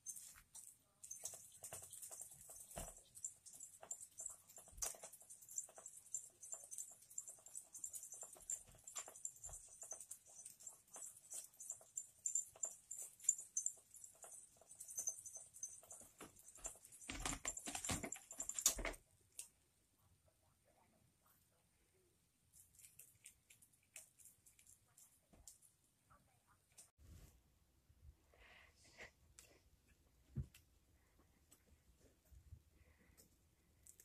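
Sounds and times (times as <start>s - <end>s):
kitten pawing scratcher toy: 0.0s - 19.0s.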